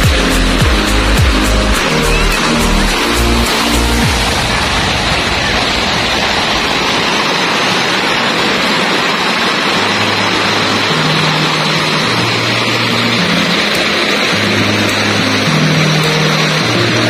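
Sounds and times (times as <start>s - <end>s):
low bass music: 0.0s - 4.3s
river rushing over rocks: 0.0s - 17.0s.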